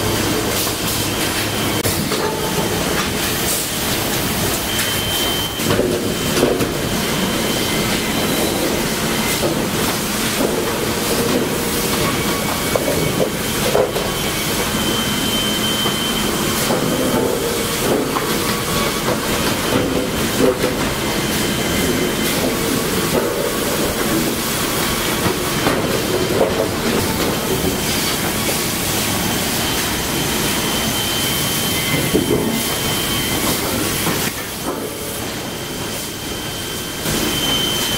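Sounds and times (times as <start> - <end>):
sawmill machinery clattering: 0.0 - 37.9
high squeals: 11.8 - 25.6, 28.6 - 34.0, 35.5 - 37.9.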